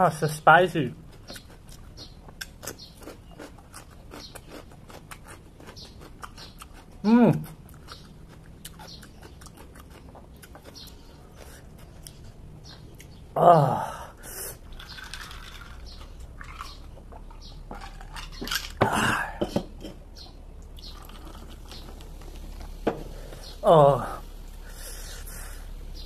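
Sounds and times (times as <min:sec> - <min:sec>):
chewing crunchy vegetables: 0:00.8 - 0:13.4, 0:14.2 - 0:26.0
loud vocal exclamation: 0:13.4 - 0:14.1, 0:23.6 - 0:24.2.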